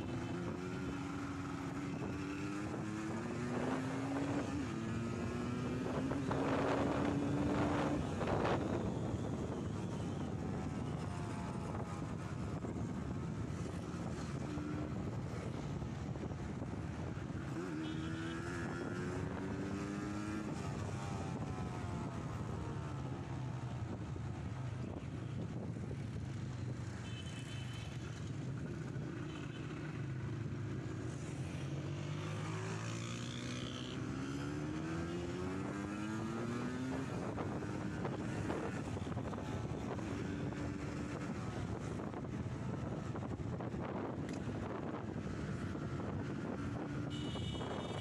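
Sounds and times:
two-stroke motorcycle engine revving: 0.0s - 8.7s, 17.3s - 22.5s.

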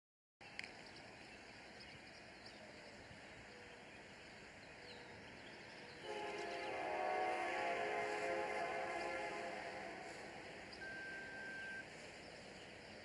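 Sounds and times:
distant locomotive air horn: 6.0s - 11.9s
high chirps: 8.9s - 11.9s.

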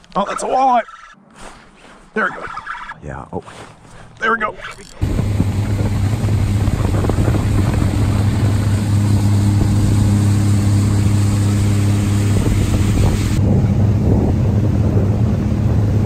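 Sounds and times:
outboard motor running: 4.8s - 16.0s
rush of wind and water: 5.0s - 16.0s.

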